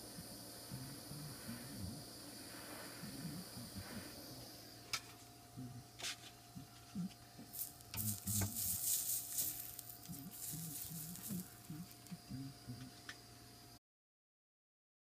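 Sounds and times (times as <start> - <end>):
rag scrubbing pipe: 6.0 - 12.2.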